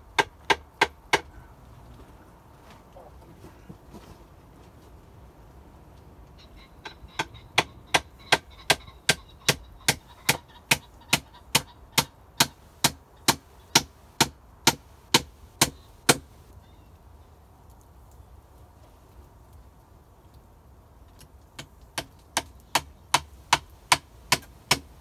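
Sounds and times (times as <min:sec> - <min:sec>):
hammer striking wooden plank: 0:07.2 - 0:16.3, 0:21.6 - 0:24.9.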